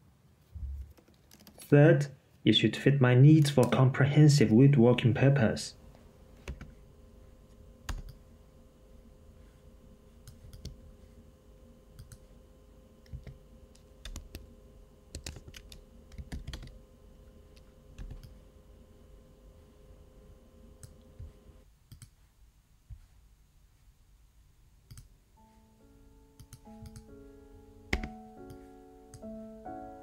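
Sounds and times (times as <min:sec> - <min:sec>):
faint steady hum: 0:00.0 - 0:30.0
keyboard and mouse clicks: 0:00.6 - 0:01.7, 0:07.9 - 0:08.2, 0:10.2 - 0:10.8, 0:12.0 - 0:12.2, 0:13.0 - 0:14.5, 0:15.1 - 0:16.8, 0:21.9 - 0:22.2, 0:24.9 - 0:25.1, 0:26.4 - 0:27.1, 0:27.9 - 0:29.3.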